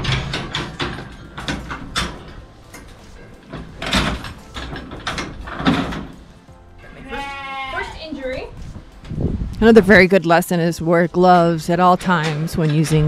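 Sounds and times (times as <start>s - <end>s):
metal gates clanking and rattling: 0.0s - 9.1s, 11.7s - 13.0s.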